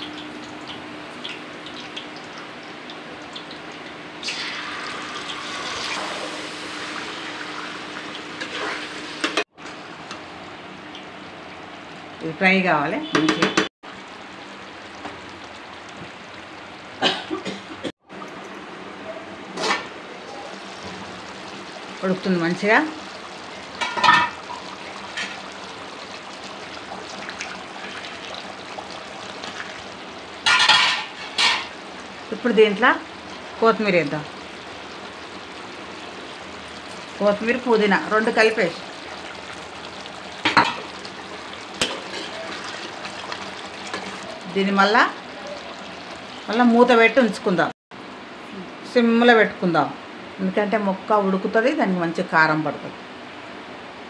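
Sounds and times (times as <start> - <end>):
leaves crackling in hot oil: 3.2 - 9.3, 19.6 - 47.7
chicken sizzling in pan: 4.2 - 9.5, 19.6 - 47.0
curry bubbling and simmering: 20.2 - 47.5.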